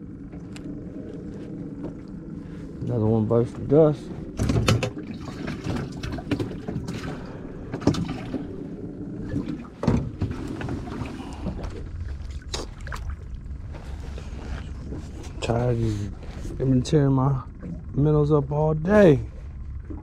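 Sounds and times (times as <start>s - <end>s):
steady low rumble: 0.0s - 20.0s
fishing gear clattering in metal boat: 4.3s - 8.6s.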